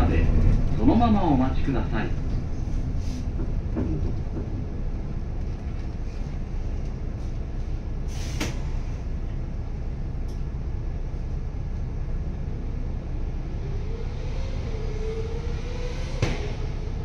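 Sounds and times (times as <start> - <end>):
bus engine idling: 0.0 - 13.6
rising engine whine: 12.2 - 17.0.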